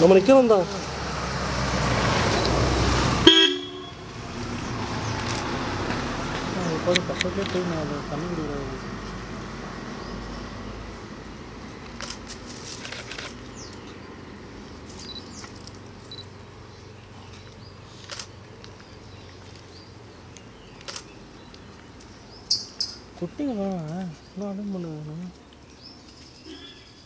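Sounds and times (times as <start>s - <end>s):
camera shutter clicks: 11.9s - 13.4s, 18.0s - 18.3s, 20.8s - 21.1s.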